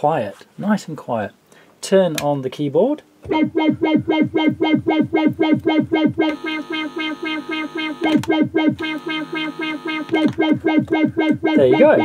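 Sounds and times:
synthesiser repeating note: 3.3s - 12.0s.

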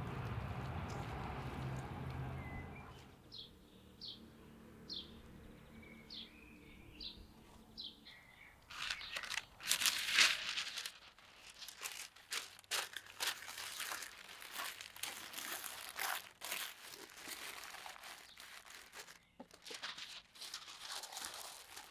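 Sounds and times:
bird chirping: 2.3s - 9.6s
parchment paper crinkling: 8.7s - 21.9s.

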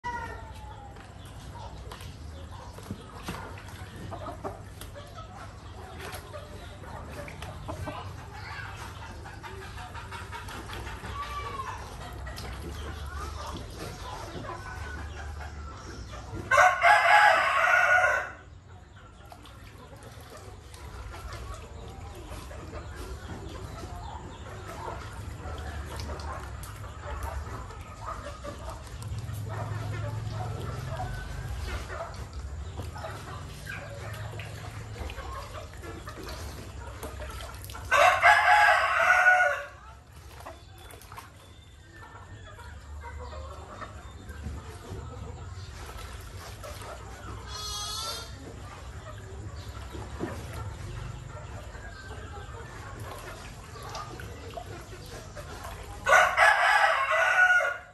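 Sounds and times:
rooster crowing: 16.5s - 18.4s, 37.9s - 39.7s, 56.1s - 57.9s.

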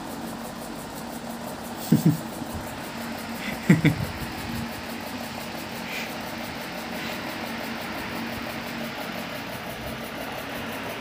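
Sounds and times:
machine humming with hiss: 0.0s - 11.0s.

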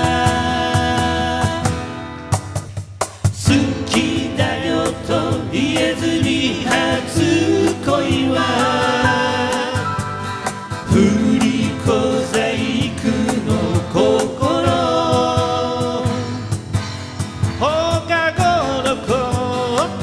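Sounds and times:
person singing: 0.0s - 1.9s, 3.4s - 10.2s, 10.9s - 16.5s
folk band playing: 0.0s - 20.0s.

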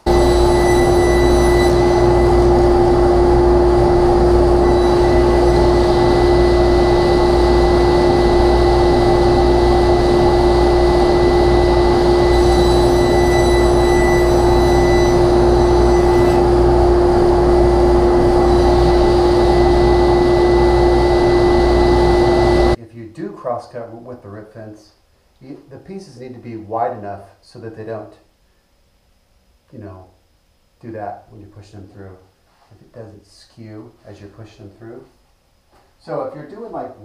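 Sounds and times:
table saw and dust collector drone: 0.0s - 22.8s.

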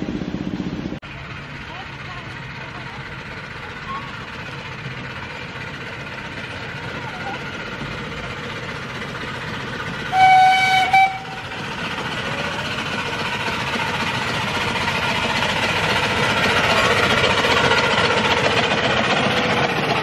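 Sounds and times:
train running noise: 0.0s - 20.0s
steam locomotive whistle: 10.1s - 11.6s.

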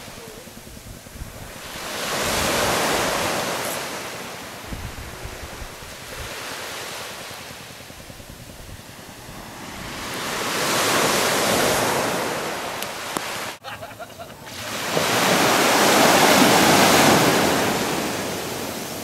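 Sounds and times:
wind rumble on microphone: 0.0s - 13.3s
surf washing on sand: 0.0s - 13.7s, 14.4s - 19.0s.

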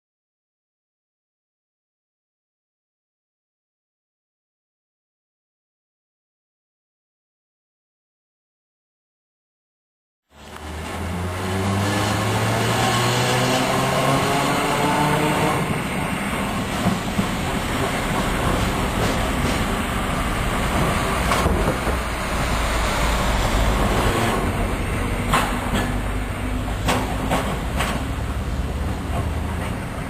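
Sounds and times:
wheels clicking over rail joints: 16.4s - 22.5s, 24.3s - 30.0s.

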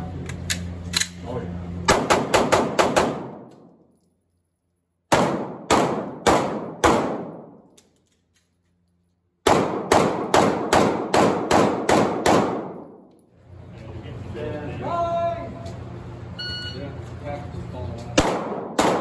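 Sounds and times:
pistol shots indoors: 1.8s - 4.2s, 5.0s - 8.4s, 9.3s - 13.3s, 18.2s - 19.0s.

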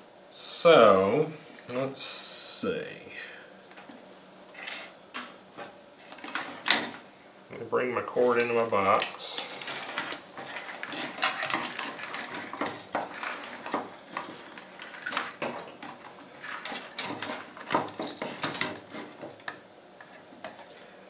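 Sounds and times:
handling wires and plastic box: 4.6s - 7.0s, 8.2s - 20.8s.

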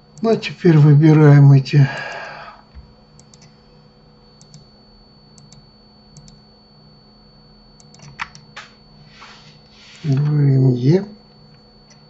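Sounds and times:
computer mouse clicking: 3.2s - 3.5s, 4.4s - 4.7s, 5.4s - 5.6s, 6.2s - 6.4s, 7.8s - 8.7s.

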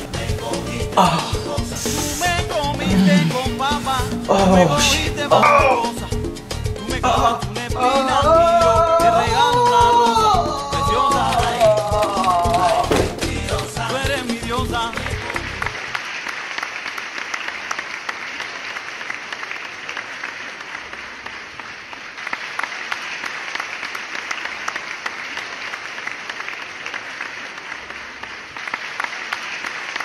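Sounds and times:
crowd applause: 1.0s - 2.2s, 2.8s - 6.0s, 10.7s - 30.0s.

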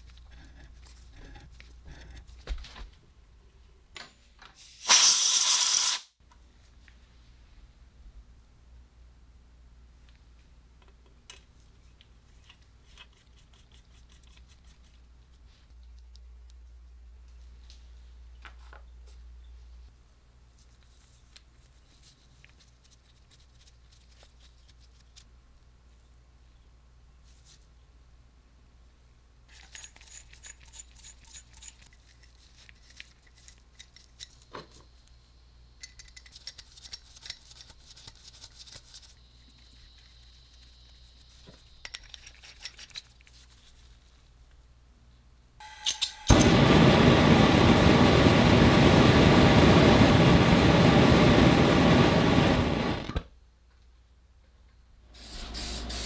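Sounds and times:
low steady hum: 6.2s - 55.1s
small metallic clicks: 45.7s - 46.4s.

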